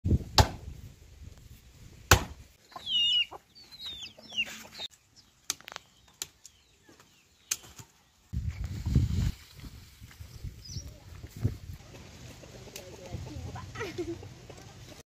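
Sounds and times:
chickens clucking: 2.6 - 5.0, 11.8 - 15.0.

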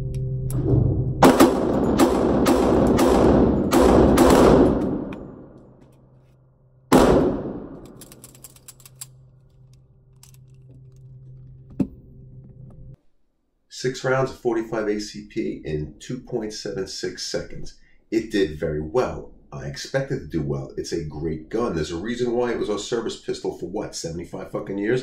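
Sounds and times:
pistol shots echoing indoors: 1.2 - 5.8, 6.9 - 8.2
steady low hum: 6.8 - 13.0.

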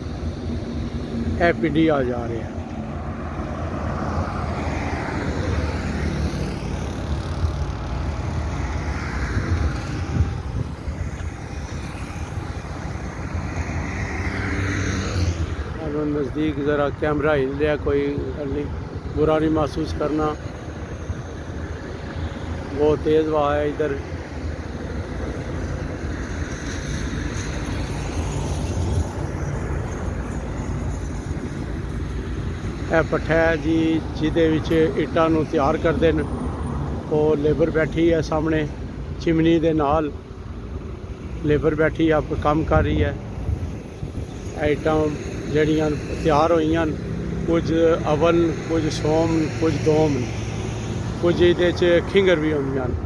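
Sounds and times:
wind rumbling on microphone: 0.0 - 17.2, 40.4 - 46.2
highway traffic passing: 0.0 - 53.0
wind buffeting microphone: 6.7 - 13.5.

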